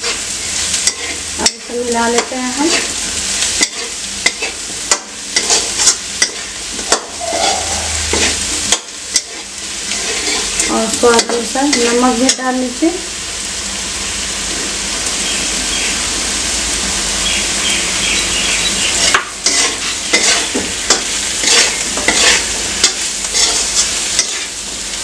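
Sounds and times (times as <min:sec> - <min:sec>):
food sizzling in oil: 0:00.0 - 0:25.0
metal spatula scraping pan: 0:03.6 - 0:12.4, 0:19.4 - 0:24.5.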